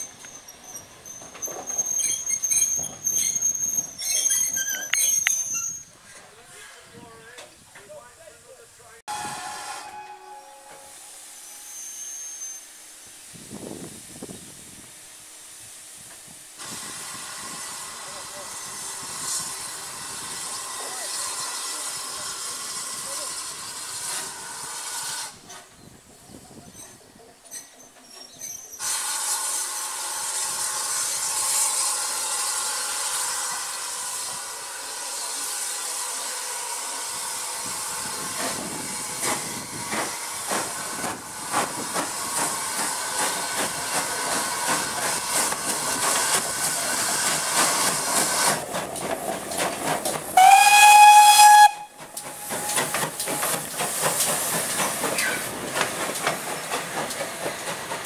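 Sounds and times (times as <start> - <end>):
steam engine hissing: 0.0 - 58.0
steam train exhaust beats: 8.0 - 26.6, 28.7 - 58.0
steam whistle blast: 9.1 - 13.0, 50.4 - 52.9
train wheels clanking: 38.2 - 58.0.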